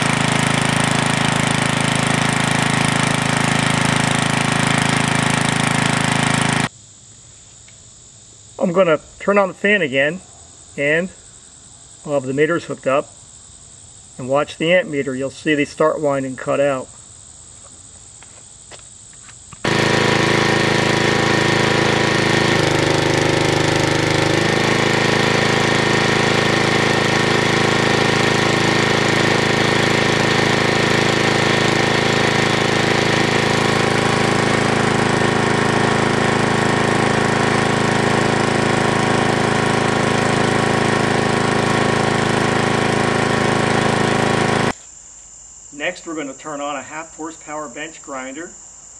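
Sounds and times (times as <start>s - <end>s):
generator engine running: 0.0s - 6.7s, 19.6s - 44.8s.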